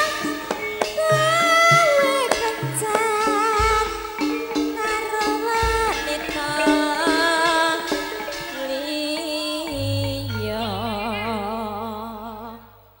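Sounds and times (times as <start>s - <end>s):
live band music: 0.0s - 12.0s
person singing with vibrato: 0.0s - 13.0s
low sustained bass note: 9.7s - 13.0s.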